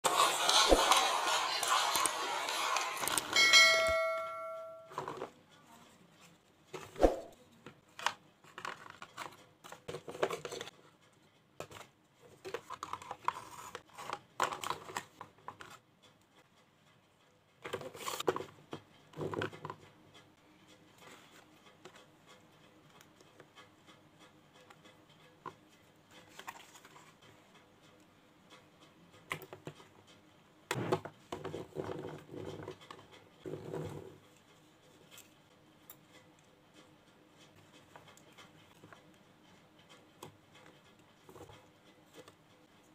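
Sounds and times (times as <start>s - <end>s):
plastic toy parts clicking and scraping: 0.1s - 3.4s, 5.0s - 16.3s, 17.6s - 23.7s, 24.5s - 27.3s.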